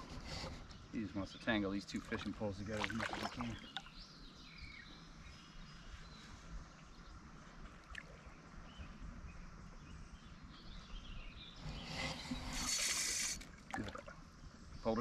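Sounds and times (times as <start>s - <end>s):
faint hiss: 11.5s - 15.0s.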